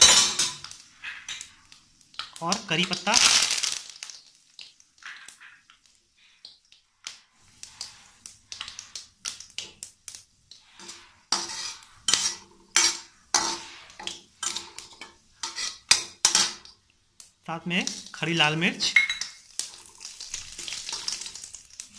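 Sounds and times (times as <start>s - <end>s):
ladle scraping metal pan: 10.7s - 16.6s.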